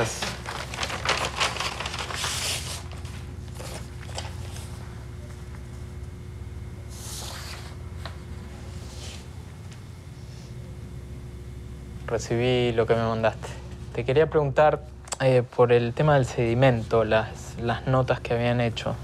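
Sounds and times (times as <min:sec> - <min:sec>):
paper rustling and scraping: 0:00.0 - 0:04.8
faint steady hum: 0:00.0 - 0:19.0.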